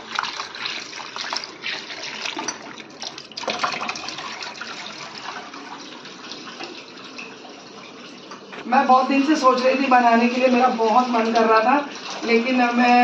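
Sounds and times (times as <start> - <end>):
tap water running into bowl: 0.0 - 8.7.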